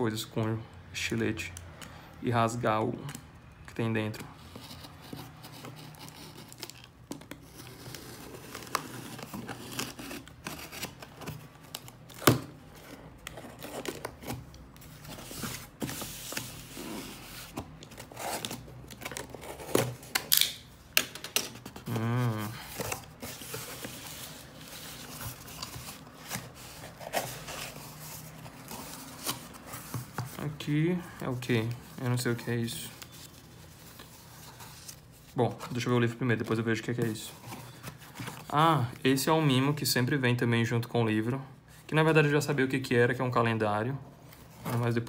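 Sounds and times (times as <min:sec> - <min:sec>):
tape tearing: 0:04.8 - 0:12.6, 0:15.2 - 0:24.1
cardboard flaps rustling: 0:21.6 - 0:30.6.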